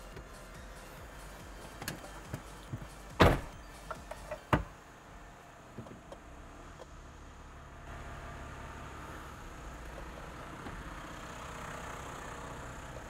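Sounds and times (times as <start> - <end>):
diesel engine idling: 0.0 - 13.0
loud thumps: 1.8 - 3.6.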